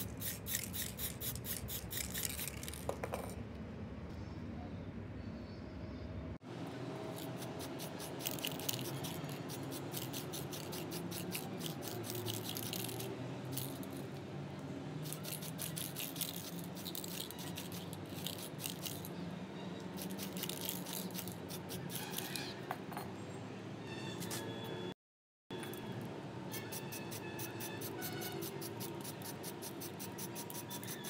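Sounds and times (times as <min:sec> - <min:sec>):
spray can hissing: 0:00.0 - 0:02.9, 0:07.2 - 0:13.7, 0:26.6 - 0:31.0.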